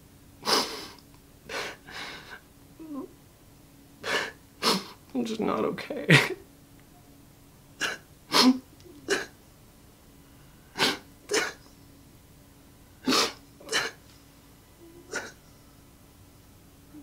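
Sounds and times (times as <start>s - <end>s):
man crying and sniffling: 0.4s - 2.5s, 4.0s - 5.0s, 13.0s - 14.0s.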